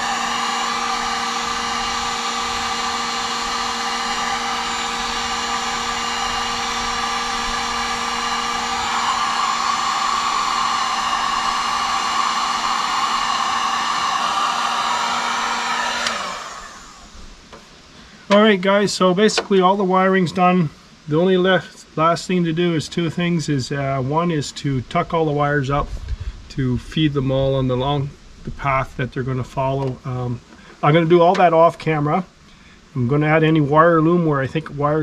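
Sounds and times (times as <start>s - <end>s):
heat gun blowing with motor hum: 0.0s - 18.4s.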